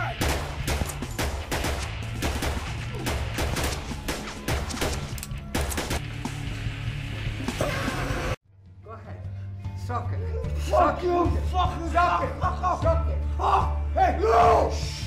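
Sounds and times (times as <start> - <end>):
low droning music: 0.0 - 15.0
rapid gunfire: 0.1 - 6.1.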